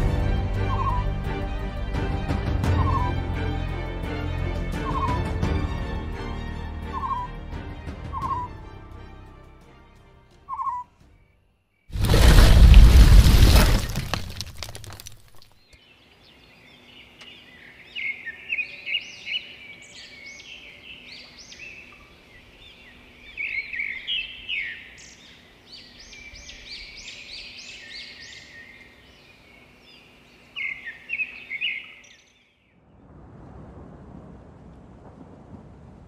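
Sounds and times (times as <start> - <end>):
songbirds chirping and trilling: 0.6 - 1.1, 2.7 - 5.5, 6.8 - 8.7, 10.4 - 11.9, 15.6 - 33.1.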